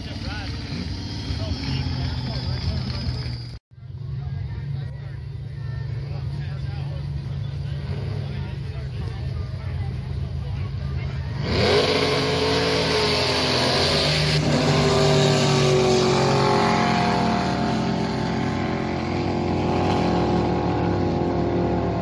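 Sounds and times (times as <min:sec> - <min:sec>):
jet boat engine at high revs: 0:11.4 - 0:22.0.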